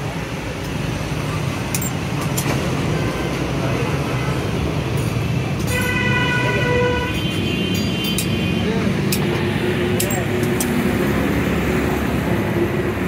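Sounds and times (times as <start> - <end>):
road traffic rumble: 0.0 - 13.0
vehicle horn: 5.7 - 8.7.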